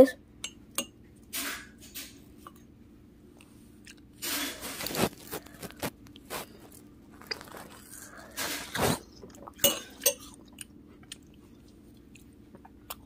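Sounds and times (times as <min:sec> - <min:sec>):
chewing and crunching fruit: 0:03.4 - 0:13.0.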